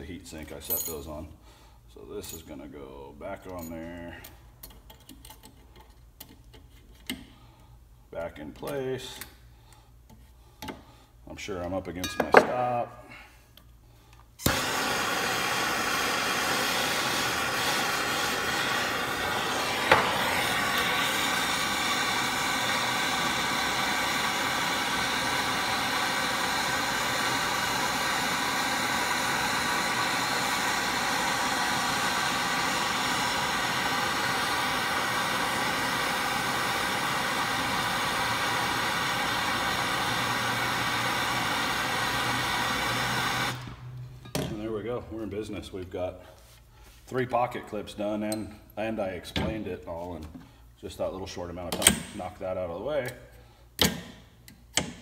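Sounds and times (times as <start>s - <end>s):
gas torch hissing: 14.3s - 44.0s.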